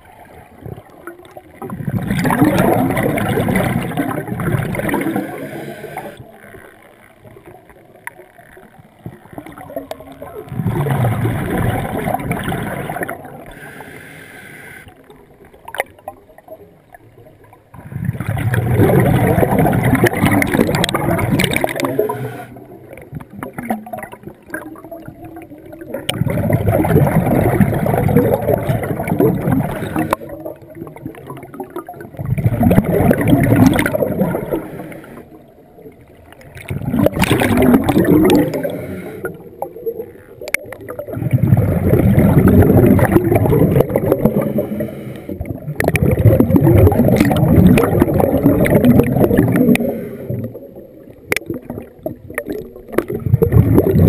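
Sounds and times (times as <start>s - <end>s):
underwater exhaled bubbles: 0.0s - 54.0s.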